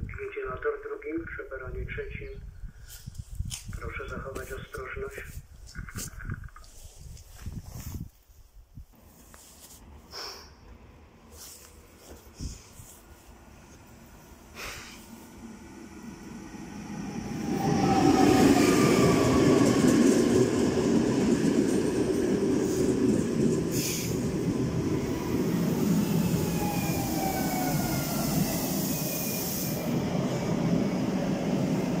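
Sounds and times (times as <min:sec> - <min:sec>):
short air hiss: 0:10.1 - 0:10.6, 0:14.5 - 0:15.2, 0:23.7 - 0:24.2, 0:28.7 - 0:29.9
train wheels rumbling on rails: 0:14.2 - 0:32.0
train whine falling in pitch: 0:25.6 - 0:30.0.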